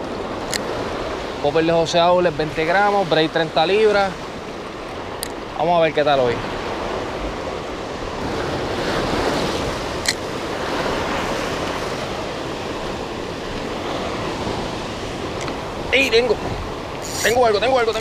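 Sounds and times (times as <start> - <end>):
surf washing over rocks: 0.0 - 18.0
wind buffeting microphone: 6.4 - 18.0.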